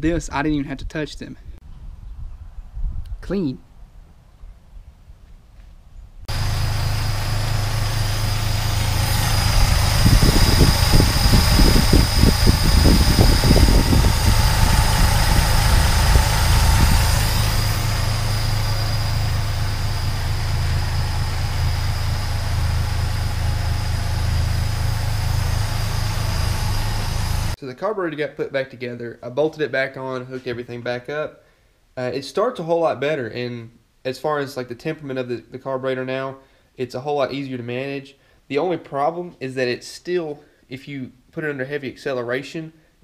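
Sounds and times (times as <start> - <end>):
car engine running: 6.3 - 27.6.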